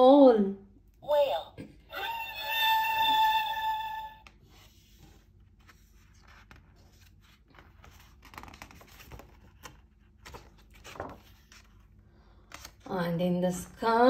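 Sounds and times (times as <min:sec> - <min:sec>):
book pages rustling: 0:04.2 - 0:12.9.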